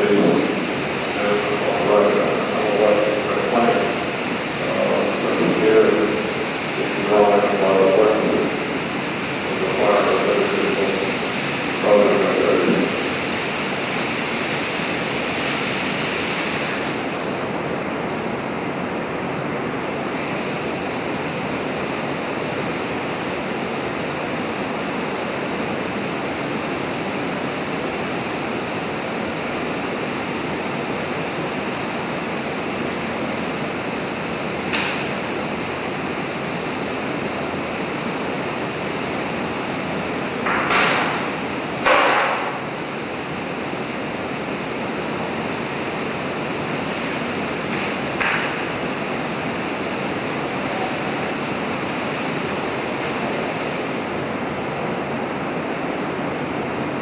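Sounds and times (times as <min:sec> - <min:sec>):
steady rushing fire noise: 0:00.0 - 0:57.0.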